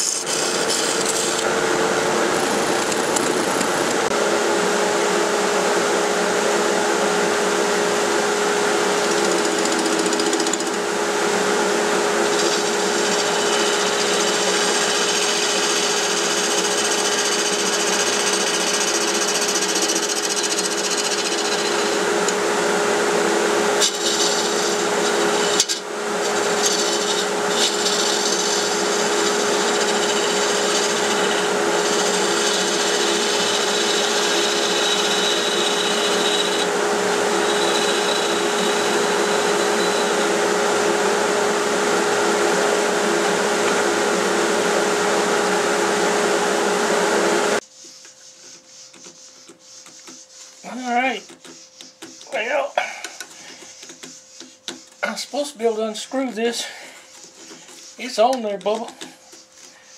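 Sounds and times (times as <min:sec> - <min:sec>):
turning tool scraping wood: 0:00.0 - 0:01.5, 0:02.3 - 0:04.2, 0:08.7 - 0:22.6, 0:23.6 - 0:40.4, 0:47.6 - 0:59.9
lathe humming: 0:00.0 - 0:59.8.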